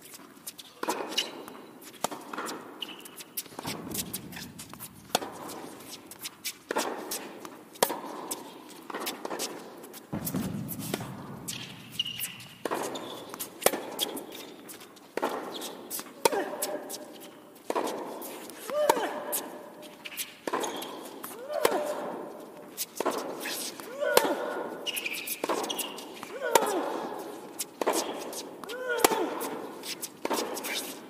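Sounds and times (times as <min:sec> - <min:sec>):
racquets striking tennis ball: 0:00.8 - 0:31.0
shuffling footsteps: 0:03.4 - 0:06.6, 0:09.9 - 0:16.1
tennis ball bouncing: 0:03.4 - 0:08.1, 0:08.8 - 0:14.4, 0:24.2 - 0:26.7.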